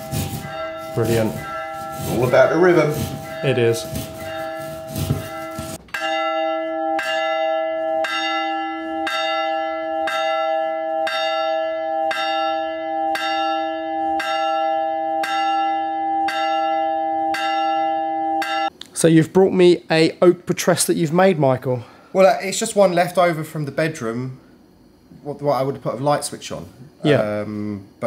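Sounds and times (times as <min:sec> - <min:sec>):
church bell ringing: 0:00.0 - 0:18.8.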